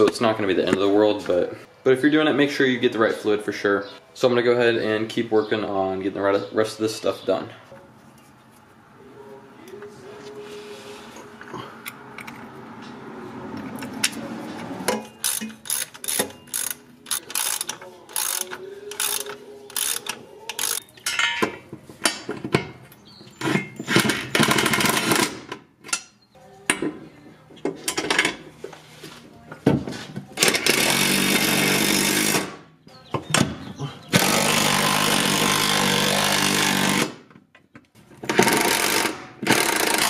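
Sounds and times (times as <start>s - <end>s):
faint handling noises: 7.5s - 8.9s
ratchet wrench clicking: 15.2s - 20.8s.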